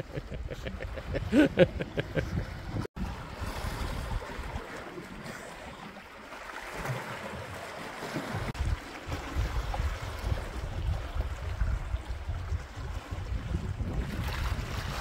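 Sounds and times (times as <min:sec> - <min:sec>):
wind rumbling on microphone: 0:00.0 - 0:04.6, 0:08.4 - 0:15.0.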